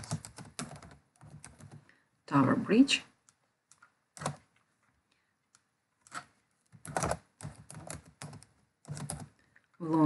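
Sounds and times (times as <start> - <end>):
typing on keyboard: 0.0 - 1.9, 3.2 - 4.6, 6.0 - 9.6.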